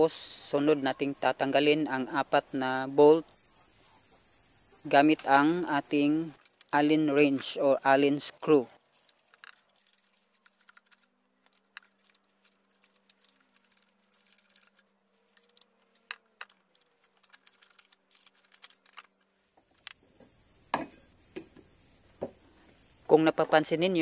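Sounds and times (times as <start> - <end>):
insect trilling: 0.0 - 6.4, 19.6 - 24.0.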